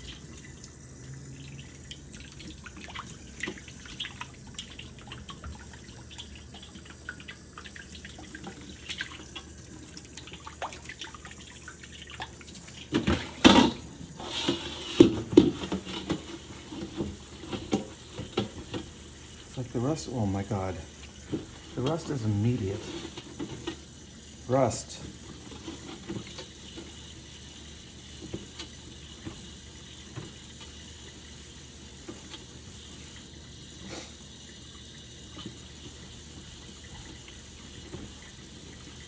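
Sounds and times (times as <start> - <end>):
water dripping in steel sink: 0.0 - 13.0.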